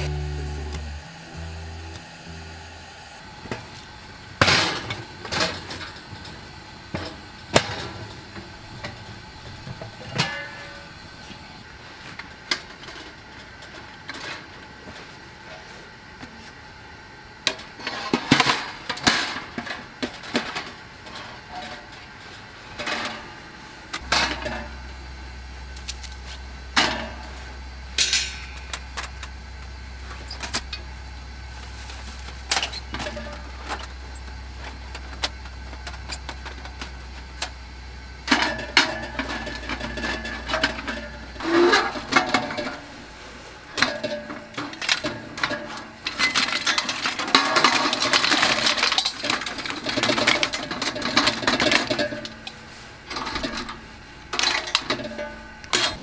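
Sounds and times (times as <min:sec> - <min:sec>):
metal clanks and scrapes: 0:04.4 - 0:11.4, 0:25.8 - 0:29.3, 0:31.6 - 0:37.5, 0:38.2 - 0:56.0
charcoal rattling against metal: 0:04.4 - 0:11.6, 0:24.0 - 0:25.0, 0:25.6 - 0:56.0.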